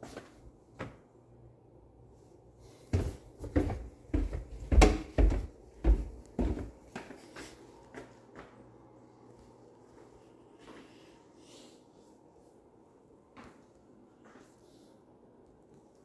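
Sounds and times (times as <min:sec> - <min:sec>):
footsteps on tile floor: 0:02.7 - 0:08.6
footsteps on wooden stairs: 0:02.9 - 0:08.5.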